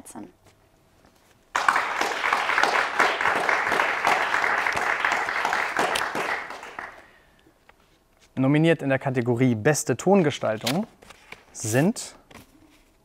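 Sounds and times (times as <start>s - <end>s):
many hands clapping: 1.5s - 7.2s.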